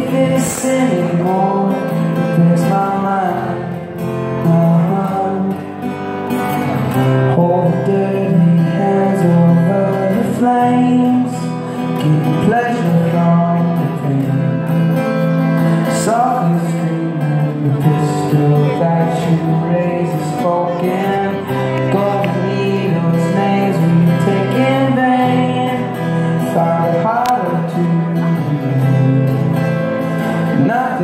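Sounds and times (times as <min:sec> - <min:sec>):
acoustic guitar strumming: 0:00.0 - 0:31.0.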